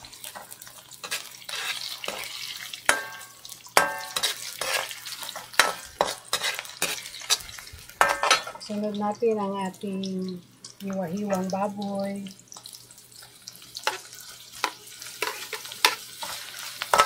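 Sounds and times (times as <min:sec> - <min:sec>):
onion and garlic sizzling in oil: 0:00.0 - 0:17.0
metal ladle scraping a wok: 0:00.3 - 0:03.2, 0:03.8 - 0:08.6, 0:14.6 - 0:17.0.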